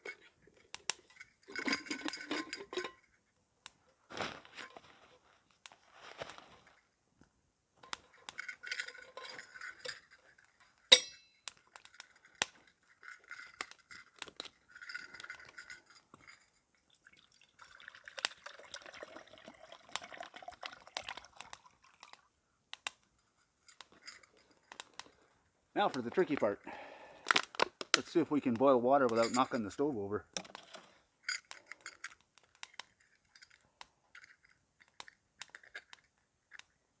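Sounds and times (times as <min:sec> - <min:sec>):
metal cup clinking: 0:00.9 - 0:03.0, 0:10.9 - 0:12.3, 0:29.0 - 0:29.7
water pouring into cup: 0:16.9 - 0:22.2.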